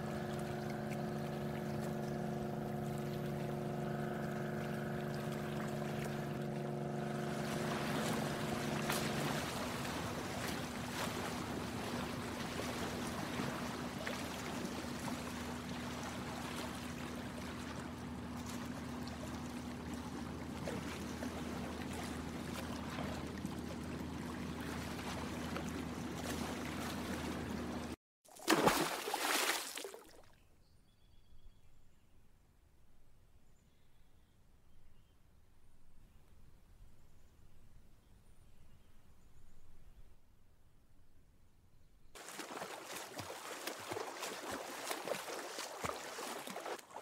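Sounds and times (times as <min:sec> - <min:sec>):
boat motor running: 0:00.0 - 0:28.0
water lapping and splashing: 0:00.0 - 0:30.4, 0:42.2 - 0:47.0.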